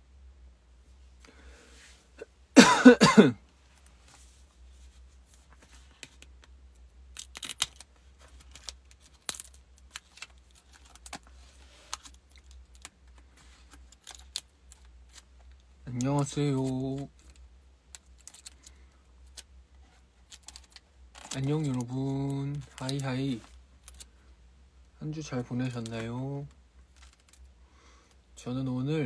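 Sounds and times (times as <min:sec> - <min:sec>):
man clearing his throat: 0:02.6 - 0:03.4.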